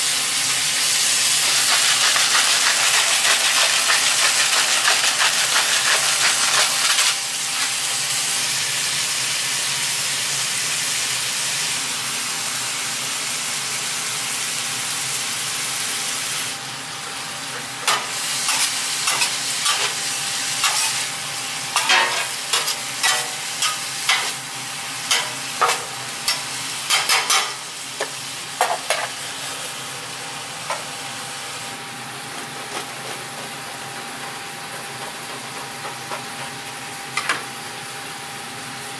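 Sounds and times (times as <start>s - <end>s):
meat and vegetables sizzling: 0.0s - 37.9s
metal spatula clacking on griddle: 21.8s - 24.4s, 25.1s - 27.6s.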